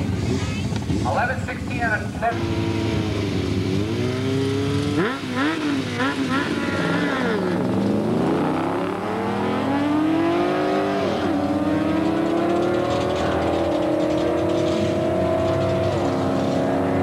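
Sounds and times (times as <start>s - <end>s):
motorcycle accelerating hard: 0.0s - 1.2s, 2.2s - 17.0s
car accelerating hard: 2.3s - 17.0s.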